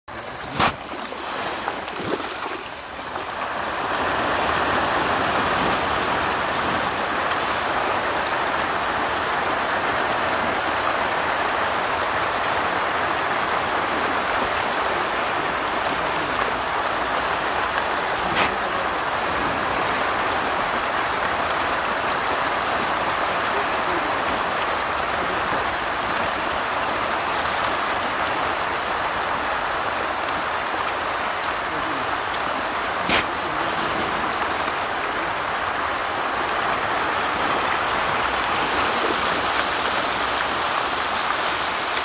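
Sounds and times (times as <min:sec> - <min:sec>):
fish thrashing in splashing water: 0:00.4 - 0:03.0.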